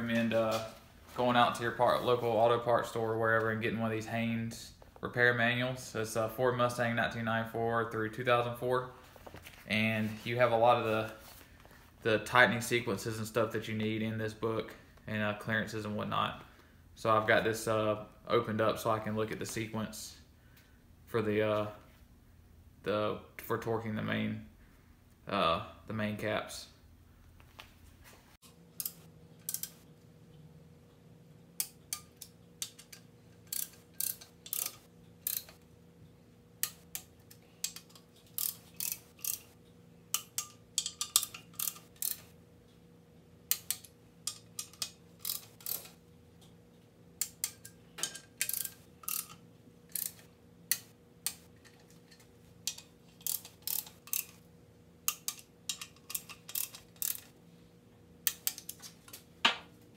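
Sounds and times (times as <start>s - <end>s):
ratcheting torque wrench clicking: 28.8s - 29.8s, 31.6s - 35.6s, 36.6s - 42.3s, 43.5s - 46.0s, 47.2s - 54.4s, 55.1s - 57.4s.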